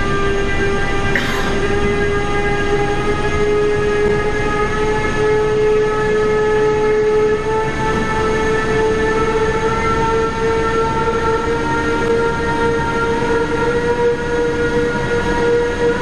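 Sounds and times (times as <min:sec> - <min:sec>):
train rumbling: 0:00.0 - 0:16.0
train whining tone: 0:00.0 - 0:16.0
short sharp hit: 0:01.2 - 0:01.7.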